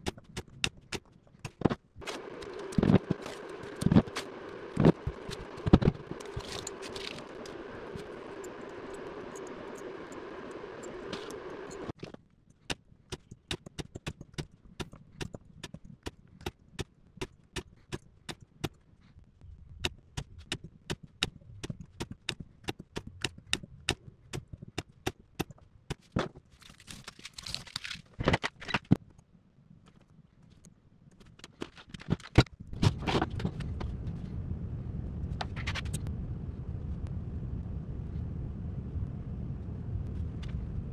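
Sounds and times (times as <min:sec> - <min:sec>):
steady hum: 0:00.0 - 0:12.0, 0:32.7 - 0:40.9
scraping rustle: 0:01.6 - 0:08.6.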